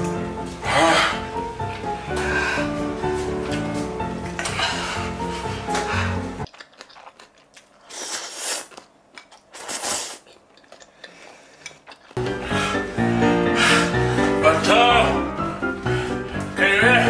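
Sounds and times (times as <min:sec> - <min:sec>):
background music: 0:00.0 - 0:06.5, 0:12.2 - 0:17.0
person chewing noodles: 0:04.4 - 0:12.4
noodle slurps: 0:07.7 - 0:12.1.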